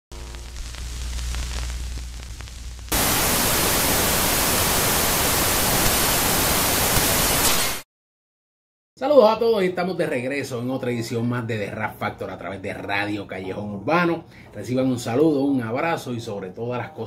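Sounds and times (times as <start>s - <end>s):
low hum with faint crackle: 0.1s - 4.1s
loud white-noise static: 0.1s - 7.8s.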